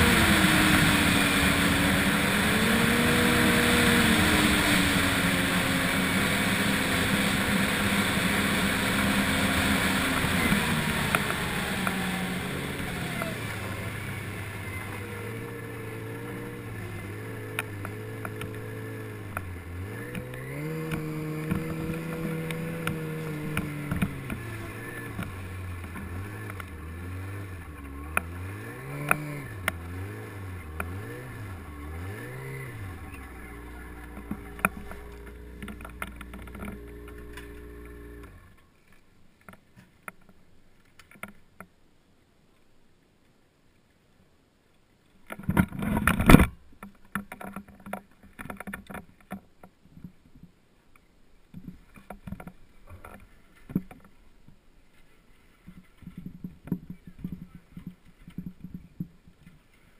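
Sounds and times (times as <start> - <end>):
snowmobile engine revving and idling: 0.0 - 38.6.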